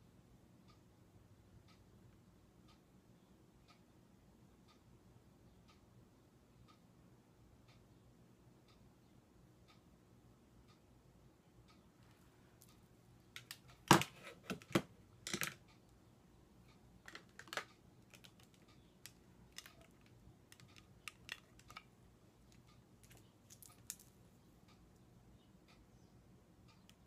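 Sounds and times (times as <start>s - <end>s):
clicks of small plastic cases: 13.4s - 15.6s, 17.1s - 21.9s.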